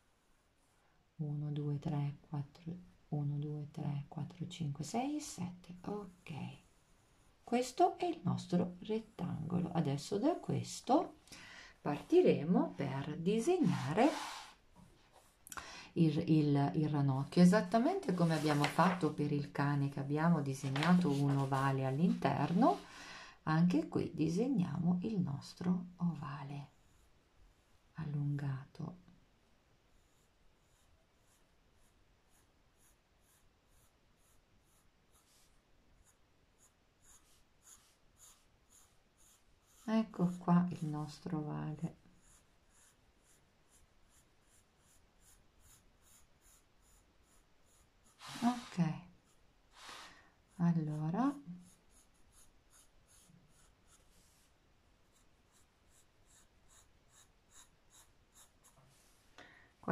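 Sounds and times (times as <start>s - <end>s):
pencil scratching on paper: 6.0s - 7.8s, 13.5s - 15.4s, 17.8s - 19.2s, 20.6s - 22.8s, 26.7s - 27.7s, 29.9s - 41.2s, 41.9s - 59.1s.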